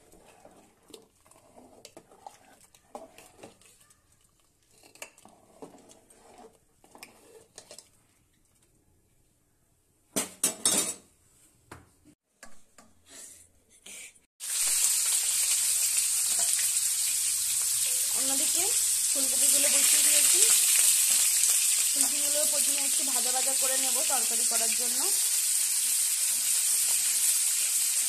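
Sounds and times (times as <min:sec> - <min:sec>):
metal ladle scraping and clinking: 0:04.7 - 0:07.9
vegetables sizzling in hot oil: 0:14.4 - 0:28.0.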